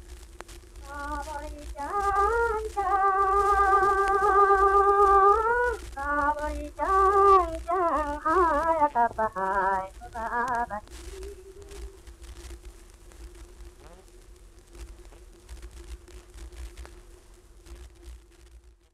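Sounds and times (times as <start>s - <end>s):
low hum: 0.0s - 17.4s
faint held tone: 0.8s - 12.1s.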